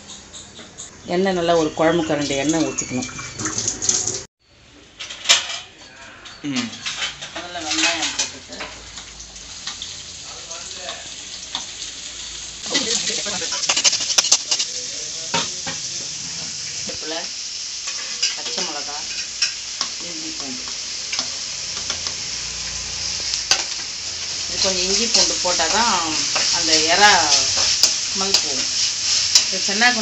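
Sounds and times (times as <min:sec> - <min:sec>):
onions sizzling in hot oil: 0:06.9 - 0:30.0.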